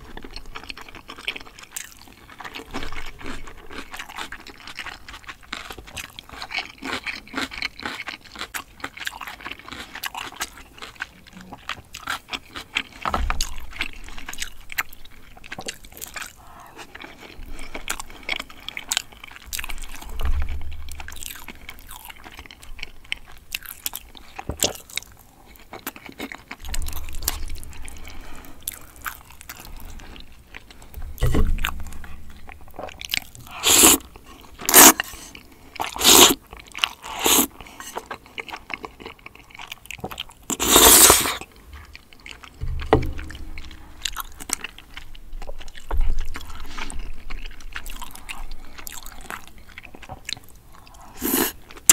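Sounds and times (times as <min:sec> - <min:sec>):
chewing with wet mouth clicks: 0:00.0 - 0:51.9
slurping noodles: 0:33.4 - 0:36.4, 0:37.0 - 0:38.1, 0:40.5 - 0:41.5, 0:50.8 - 0:51.9.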